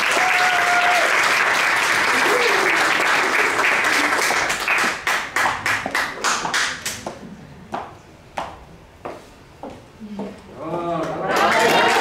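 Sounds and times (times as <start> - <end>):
applause: 0.0 - 7.0, 11.0 - 12.0.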